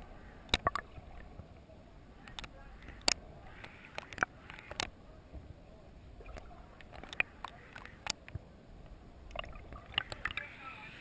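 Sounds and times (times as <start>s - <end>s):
low muffled underwater rumble: 0.0s - 11.0s
sharp underwater clicks and pops: 0.4s - 1.4s, 2.2s - 5.0s, 6.2s - 10.5s.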